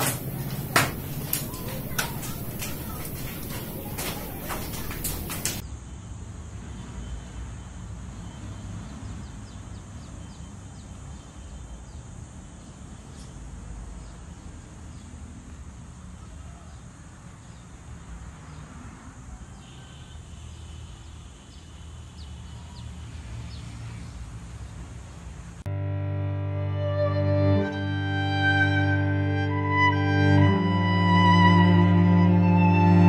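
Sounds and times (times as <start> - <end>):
outdoor rumble and hiss: 0.0 - 8.2.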